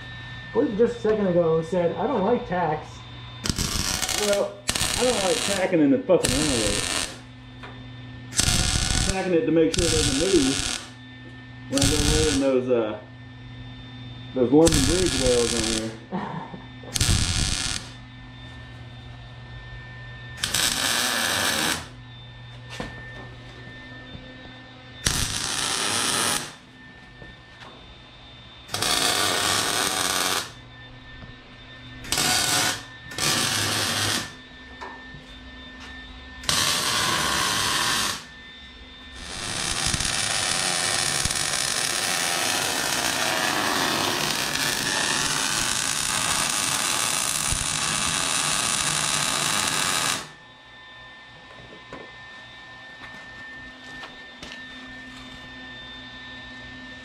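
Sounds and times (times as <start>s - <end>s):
steady hum: 0.0s - 57.0s
crackling welding arc: 3.4s - 7.3s, 8.3s - 11.0s, 11.7s - 12.6s, 14.6s - 16.0s, 16.9s - 18.0s, 20.4s - 22.0s, 25.0s - 26.6s, 28.7s - 30.6s, 32.0s - 34.4s, 36.4s - 38.3s, 39.2s - 50.4s.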